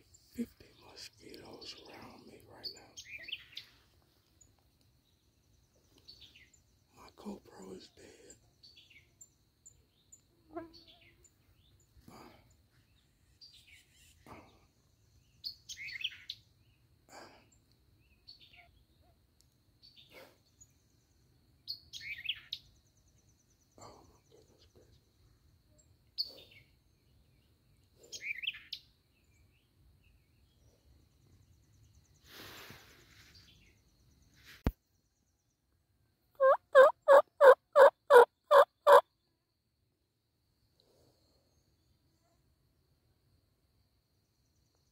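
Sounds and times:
songbirds chirping: 0.0s - 44.9s
turkey yelps: 36.4s - 39.0s.

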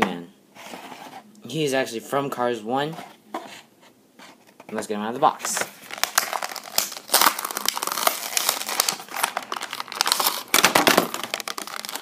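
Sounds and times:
plastic packaging crinkling: 5.4s - 12.0s.

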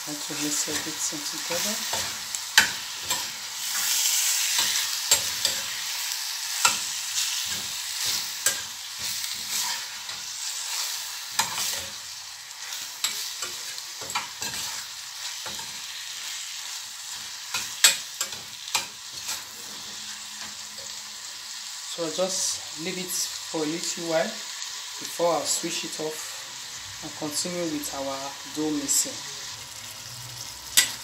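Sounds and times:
filling sizzling in a pan: 0.0s - 31.0s.

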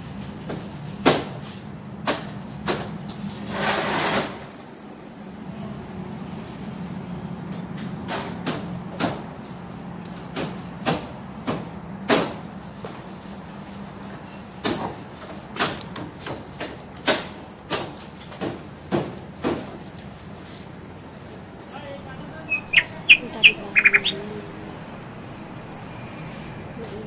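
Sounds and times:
leaves and foam rustling: 12.6s - 27.0s
steady low hum: 21.5s - 27.0s.

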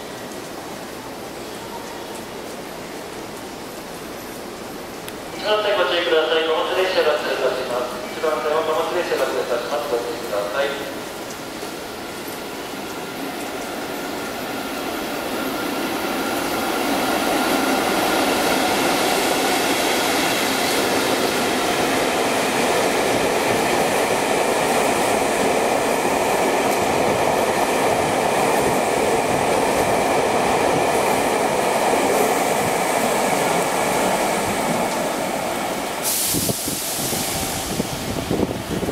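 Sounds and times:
train wheels rolling on rails: 0.0s - 38.9s
short hiss: 35.8s - 37.7s.

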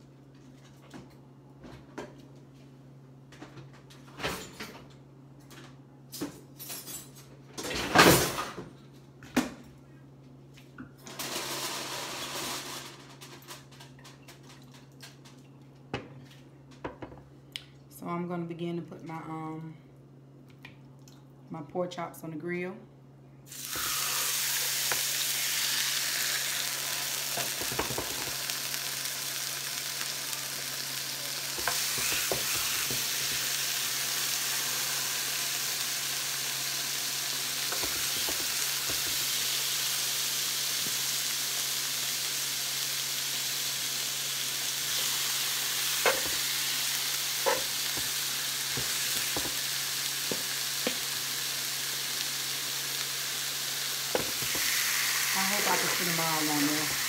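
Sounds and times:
meat sizzling on a griddle: 23.5s - 57.0s.

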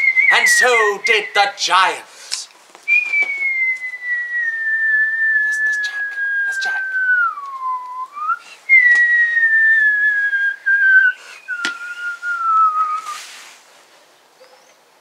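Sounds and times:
man whistling falling tone: 0.0s - 1.4s, 2.9s - 13.3s.

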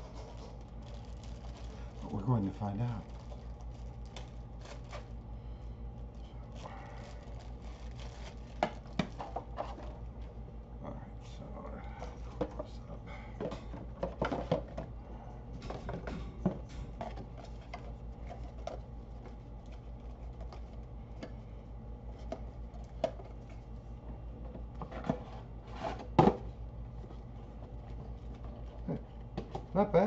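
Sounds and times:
cardboard packaging rustling: 0.0s - 5.2s, 6.1s - 10.2s
low hum: 0.0s - 25.7s.

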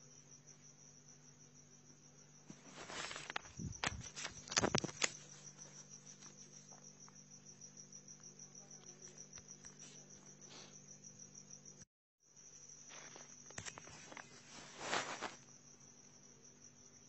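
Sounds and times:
insect trilling: 2.6s - 11.2s, 12.6s - 15.6s.

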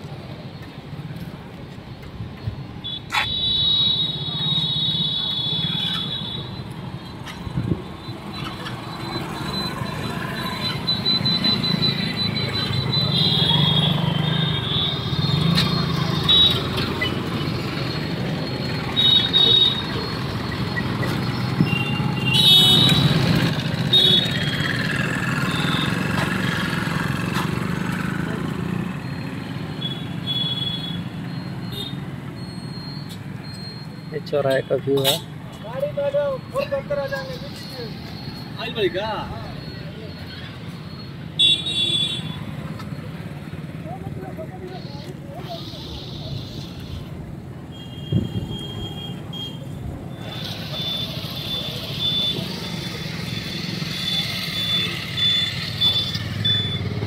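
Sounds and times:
short high-pitched squealing tones: 2.8s - 26.7s, 29.0s - 43.1s, 44.6s - 57.0s
motorcycle engines passing: 4.1s - 57.0s
faint voices: 42.5s - 47.3s.

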